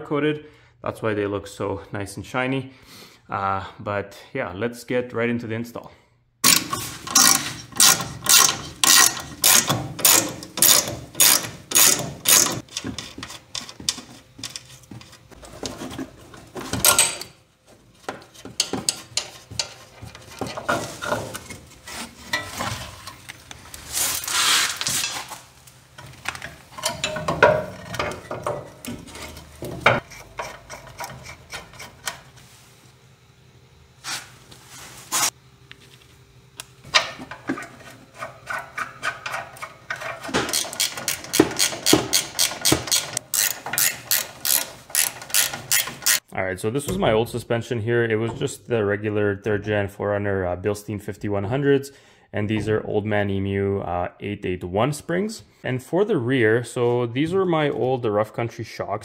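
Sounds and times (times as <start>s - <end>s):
sharp tool strokes: 6.4s - 13.8s, 38.2s - 46.3s
metal parts clanking and scraping: 6.4s - 23.4s, 24.0s - 25.4s, 26.0s - 32.3s, 36.9s - 46.3s.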